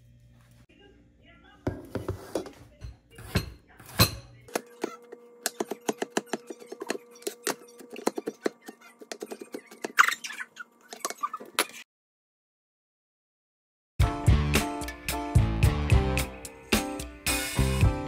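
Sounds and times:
blade scraping cutting board: 0:03.2 - 0:10.2.

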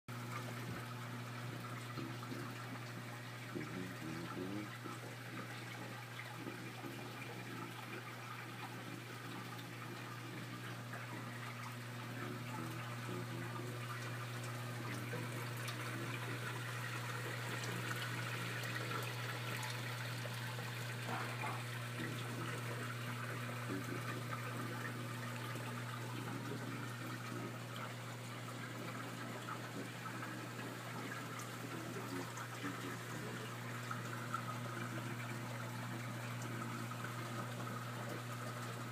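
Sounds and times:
low pump hum: 0:00.1 - 0:38.9
water splashing and running: 0:00.1 - 0:38.9.

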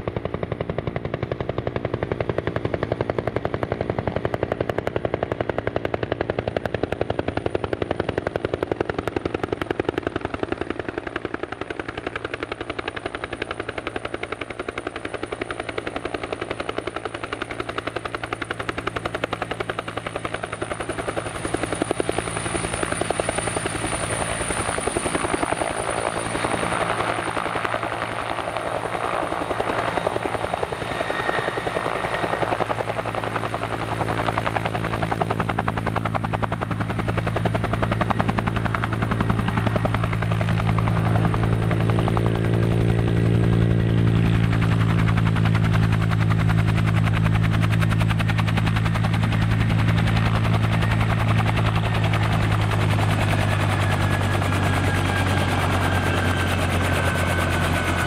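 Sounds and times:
helicopter rotor beating: 0:00.0 - 0:58.0
turbine engines humming: 0:19.7 - 0:41.5.

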